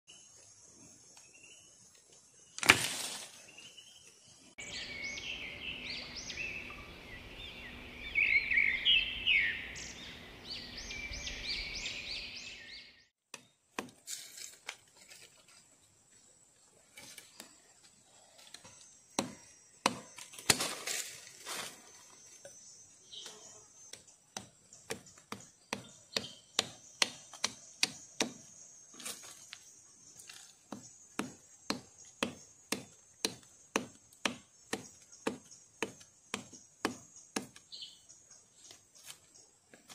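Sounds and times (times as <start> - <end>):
machete chopping wooden stick: 2.6 - 3.0, 13.3 - 14.6, 19.1 - 21.0, 23.9 - 28.5, 30.7 - 37.7
high chirping calls: 34.5 - 38.7.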